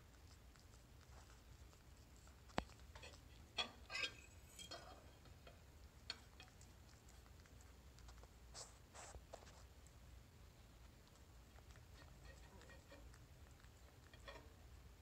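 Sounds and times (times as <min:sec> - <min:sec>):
cat licking: 0:00.0 - 0:15.0
scrapes on plate: 0:03.0 - 0:05.1
fork clinking on plate: 0:03.0 - 0:06.6.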